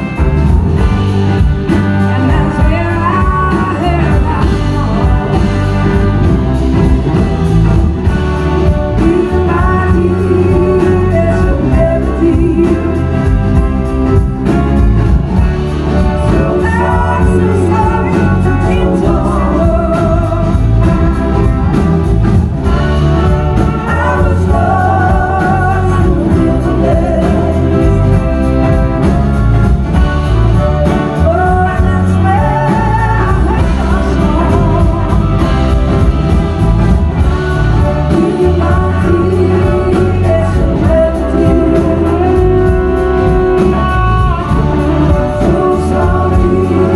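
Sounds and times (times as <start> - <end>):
live blues-rock band: 0.0 - 46.9
woman singing: 1.7 - 6.4, 8.6 - 14.6, 16.0 - 21.5, 22.6 - 29.1, 30.6 - 36.0, 37.2 - 46.9.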